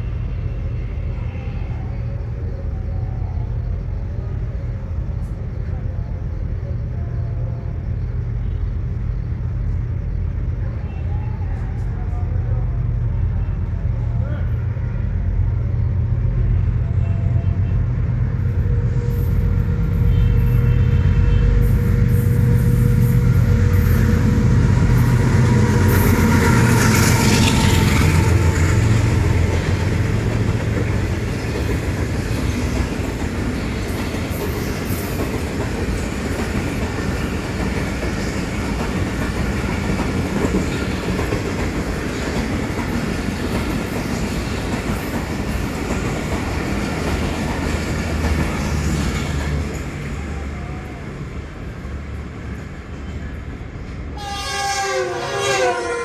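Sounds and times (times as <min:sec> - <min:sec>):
train coaches rushing by: 0:00.0 - 0:56.0
locomotive engine passing: 0:11.5 - 0:56.0.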